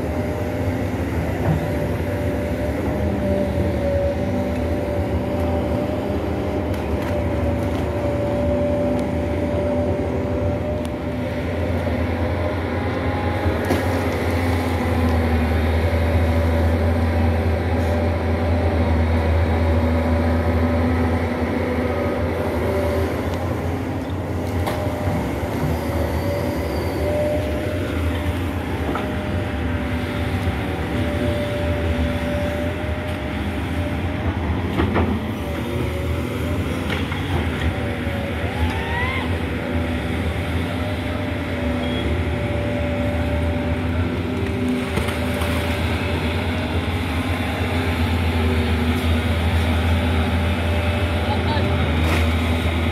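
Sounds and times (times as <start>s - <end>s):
excavator diesel engine: 0.0s - 52.9s.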